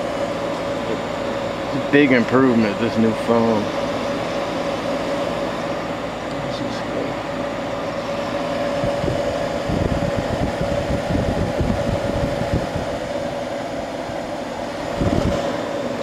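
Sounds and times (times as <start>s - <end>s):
air conditioner fan humming: 0.0s - 16.0s
low gusty rumbling: 7.8s - 16.0s.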